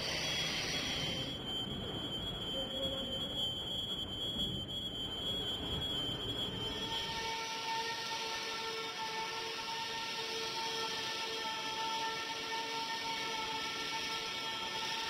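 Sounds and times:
steady high-pitched tone: 0.0 - 8.2.

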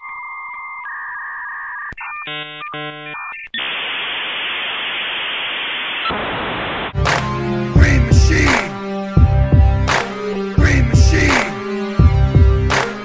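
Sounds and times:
steady beep tone: 0.0 - 3.8
rapid computer bleeps: 0.0 - 5.0
hissing static: 2.0 - 7.0
music: 7.0 - 13.0.

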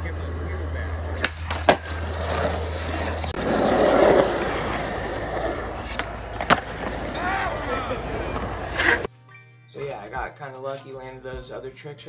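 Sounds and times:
skateboard wheels rolling on concrete: 0.0 - 9.1
sharp skateboard clack: 1.1 - 4.5, 5.6 - 7.1.

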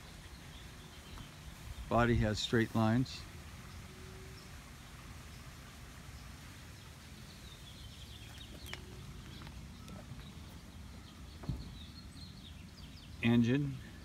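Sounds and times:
birds chirping: 0.0 - 14.0
dull thump: 11.4 - 11.9.

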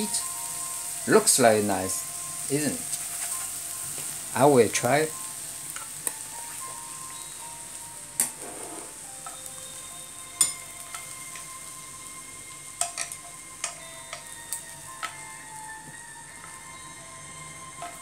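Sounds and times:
prawns sizzling in a frying pan: 0.0 - 18.0
utensil clinking on pan and plate: 10.4 - 11.6, 12.8 - 14.4.

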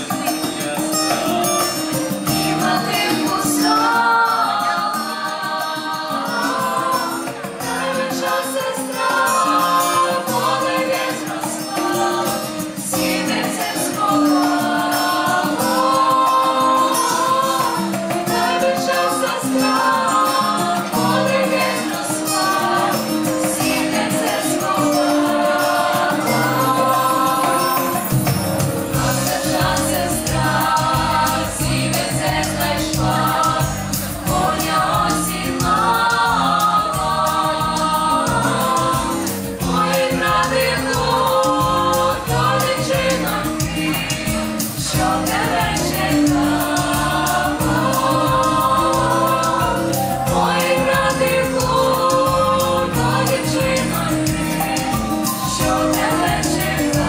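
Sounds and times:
children's choir singing: 0.0 - 57.0.

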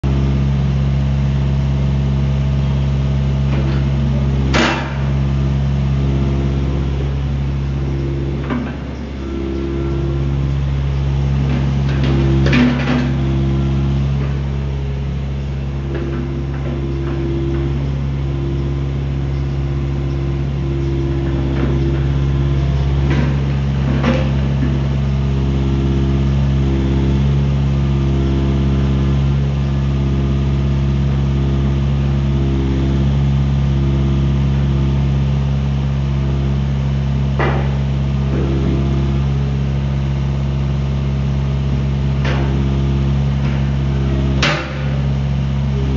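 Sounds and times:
excavator diesel engine running: 0.0 - 45.9
hydraulic tone: 0.0 - 45.9
sharp metal clanks: 3.6 - 5.2.

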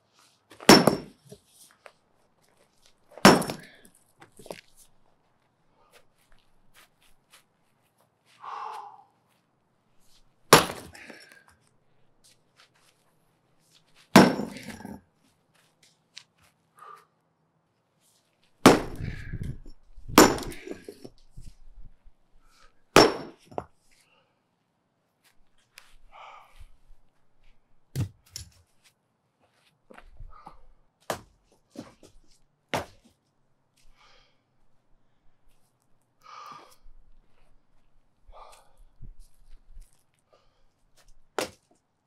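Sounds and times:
sledgehammer striking concrete: 0.7 - 1.2, 3.2 - 3.8, 10.5 - 10.9, 14.2 - 15.0, 18.6 - 19.5, 20.1 - 21.0, 23.0 - 23.5.

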